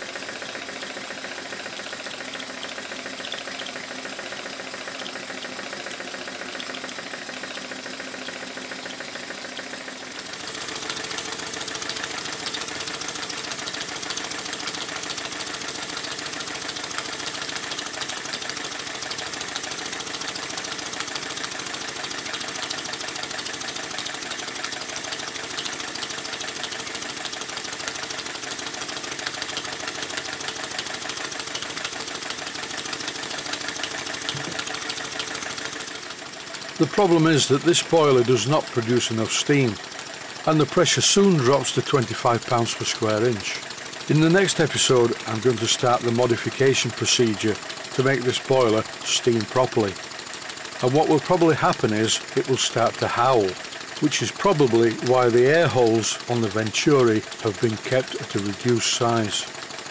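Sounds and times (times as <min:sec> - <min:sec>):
model steam engine running: 0:00.0 - 0:59.9.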